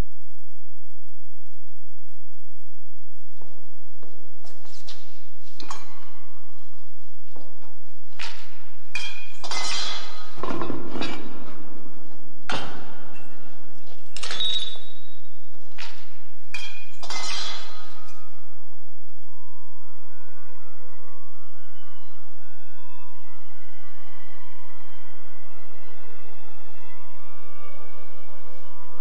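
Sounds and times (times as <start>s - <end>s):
metal pieces knocking and clinking: 8.2s - 11.3s, 12.5s - 14.8s, 16.5s - 17.8s.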